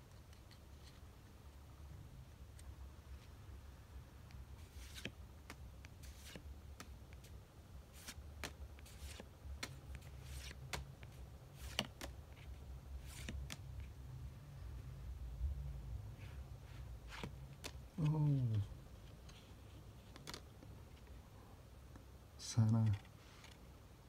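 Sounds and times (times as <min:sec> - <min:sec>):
trading cards flipped: 0:04.6 - 0:07.3, 0:07.9 - 0:13.6, 0:17.1 - 0:18.1, 0:20.1 - 0:20.4.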